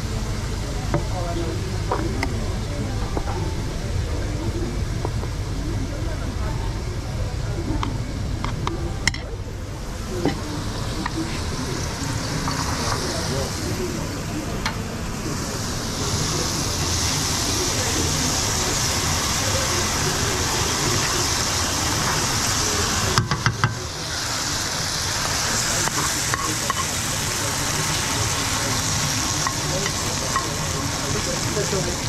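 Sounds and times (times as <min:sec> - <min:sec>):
food sizzling in a pan: 0:10.0 - 0:32.0.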